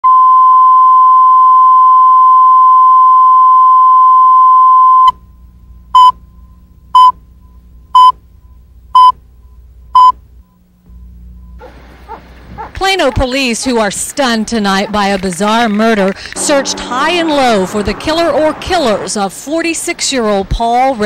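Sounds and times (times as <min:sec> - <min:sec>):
short countdown beeps: 0:08.0 - 0:08.2, 0:09.0 - 0:09.2, 0:10.0 - 0:10.2
steady test tone: 0:16.1 - 0:20.0.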